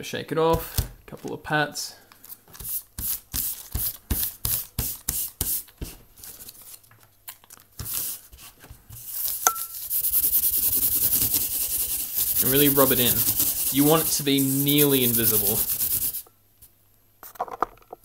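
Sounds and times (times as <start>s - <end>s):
paper patting against fabric: 7.8s - 16.2s
paper rubbing on fabric: 7.8s - 16.3s.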